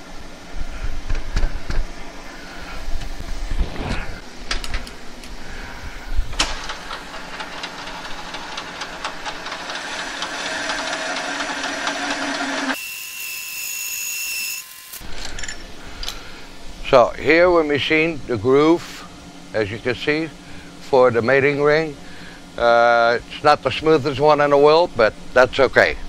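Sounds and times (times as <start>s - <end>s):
thin high steady whine: 0.0s - 12.8s, 14.3s - 26.0s
metal lathe running: 6.5s - 13.8s.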